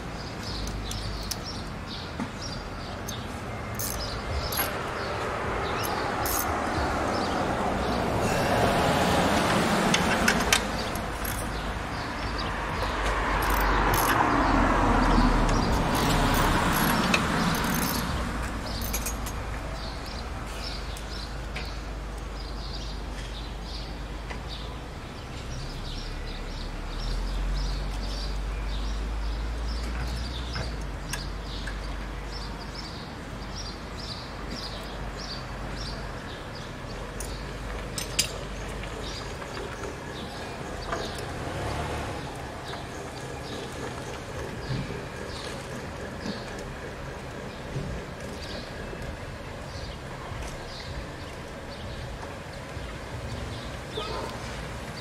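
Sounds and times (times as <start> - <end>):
birds chirping: 0.0 - 55.0
vehicle passing: 3.6 - 21.4, 38.8 - 48.4.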